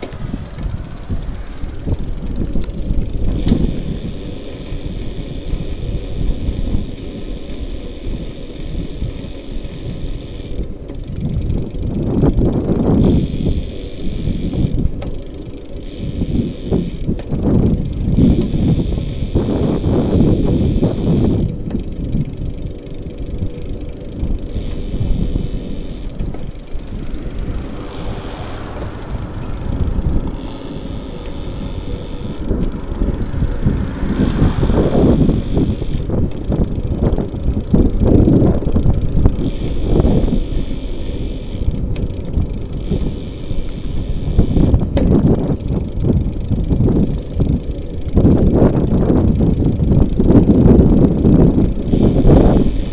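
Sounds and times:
car passing: 0.0 - 5.8, 24.5 - 37.8
wind buffeting microphone: 0.0 - 52.9.

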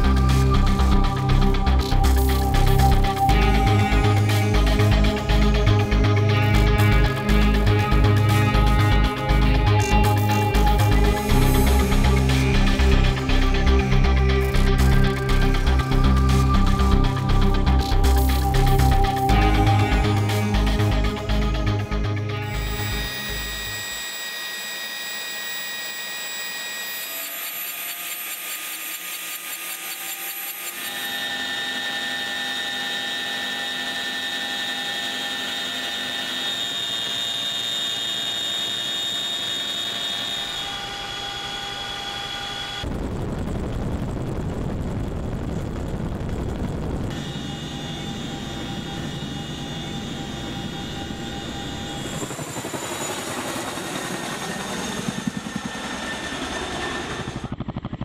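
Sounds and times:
helicopter rotor noise: 0.0 - 44.2, 45.2 - 58.0
helicopter turbine whine: 0.0 - 58.0
wind noise: 42.8 - 52.7.

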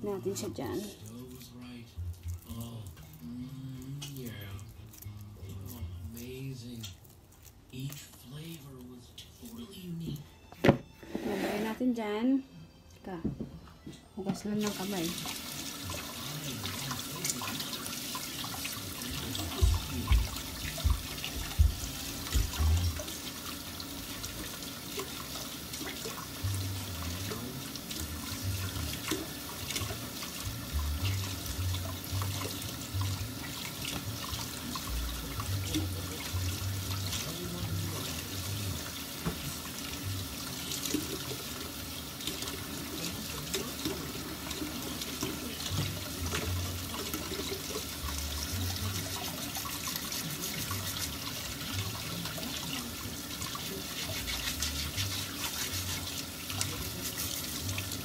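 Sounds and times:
hands washing under water: 14.6 - 58.0
tap running into sink: 17.2 - 23.6, 38.0 - 48.5.

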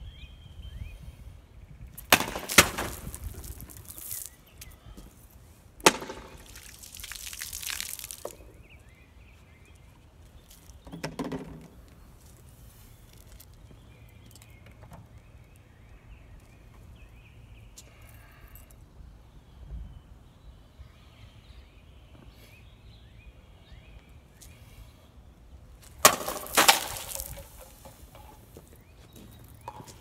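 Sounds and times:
plastic bottle crinkle: 6.2 - 8.4, 26.0 - 28.4.

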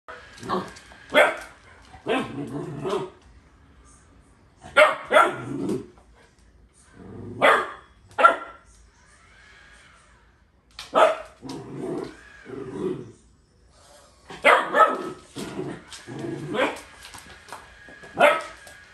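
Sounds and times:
puppy barking: 0.5 - 3.1, 4.7 - 5.5, 7.4 - 8.6, 10.9 - 11.3, 14.4 - 15.2, 18.2 - 18.6.

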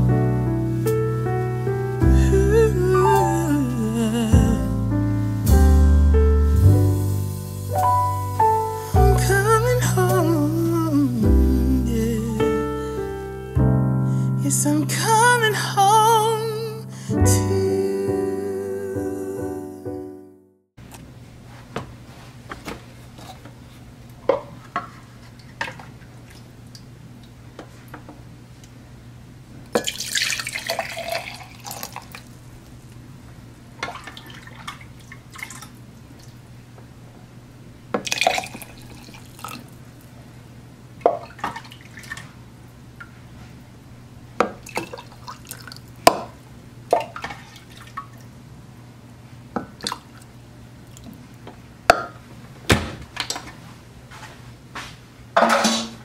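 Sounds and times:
liquid being poured: 29.8 - 32.3, 38.0 - 39.7
dishes clinking and knocking: 55.4 - 56.0.

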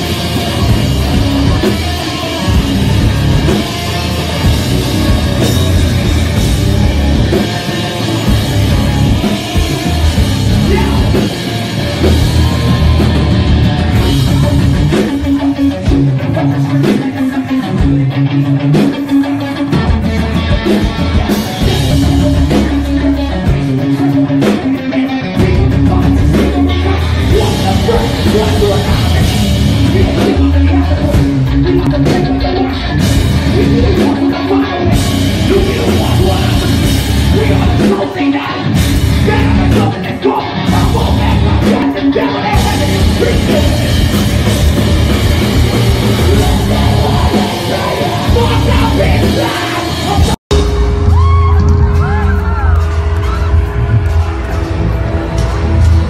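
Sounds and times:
drum kit: 0.0 - 56.0
electric guitar: 0.0 - 56.0
person singing into microphone: 9.0 - 11.5, 21.6 - 44.4, 46.0 - 50.4.

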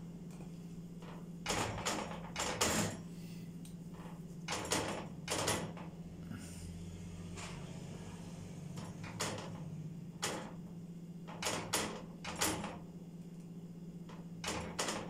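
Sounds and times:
low steady hum: 0.0 - 11.4.

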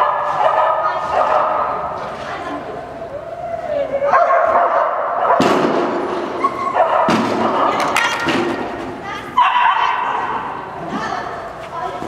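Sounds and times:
dog barking: 0.0 - 1.7, 4.1 - 5.6, 6.7 - 7.5, 9.4 - 10.0.

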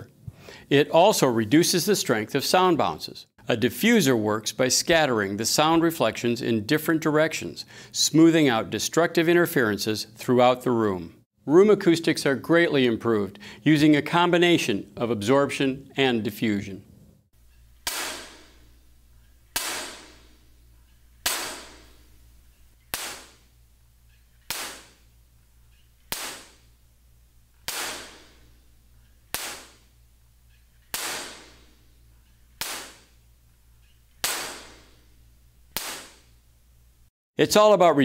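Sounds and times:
sharp clap-like impacts: 17.8 - 18.6, 19.6 - 20.4, 21.2 - 22.0, 22.9 - 23.5, 24.4 - 25.1, 26.1 - 26.7, 27.6 - 28.5, 29.3 - 29.9, 30.9 - 31.7, 32.6 - 33.2, 34.2 - 35.0, 35.7 - 36.3.

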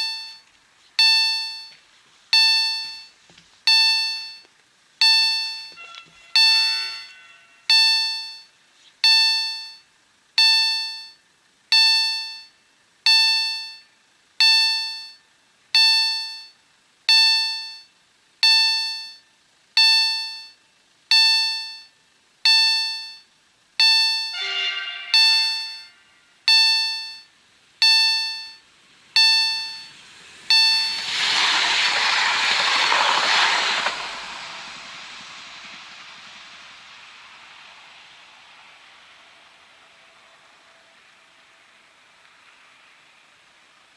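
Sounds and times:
level crossing warning bell: 0.0 - 15.2, 15.8 - 32.0
train passing over crossing: 5.5 - 7.8, 24.3 - 26.4, 29.6 - 43.0.

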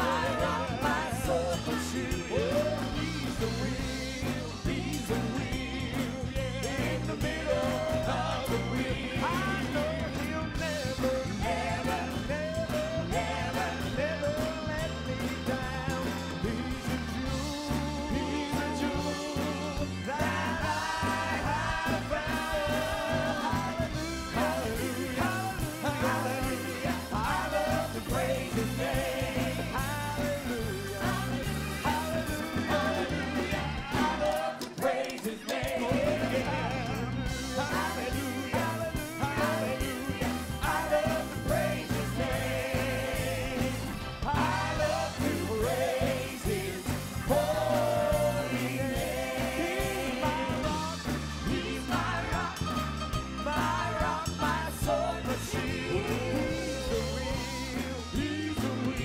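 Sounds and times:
man singing lead vocals: 0.0 - 52.8, 53.4 - 59.0
backing singers: 0.0 - 59.0
gospel music: 0.0 - 59.0.

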